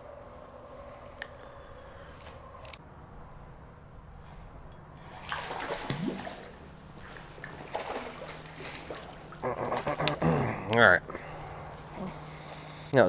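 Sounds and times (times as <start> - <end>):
steady low hum: 0.0 - 13.0
water splashing and sloshing: 5.0 - 11.9.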